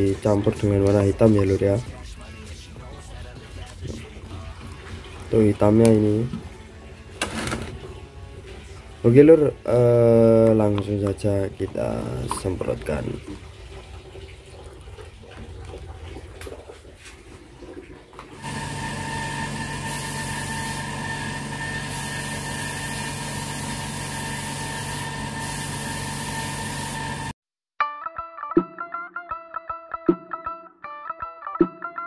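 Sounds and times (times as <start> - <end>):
spray gun air hiss: 19.5 - 27.3.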